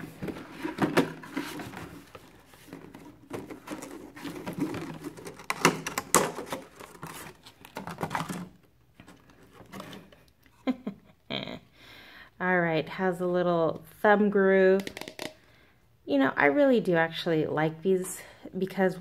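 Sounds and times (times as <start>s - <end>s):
plastic tray crinkling and clicking: 2.7s - 10.1s.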